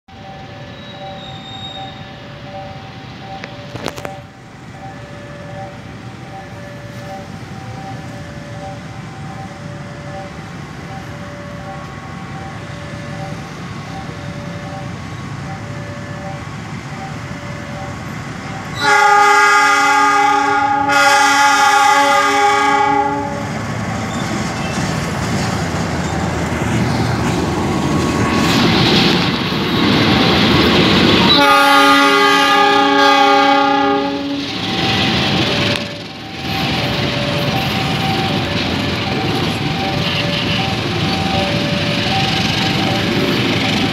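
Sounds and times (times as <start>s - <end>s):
two-note electronic warning chime: 0.1s - 19.0s, 34.0s - 43.9s
diesel locomotive rumble: 0.1s - 43.9s
locomotive air horn blasts: 18.7s - 23.6s, 31.2s - 34.6s.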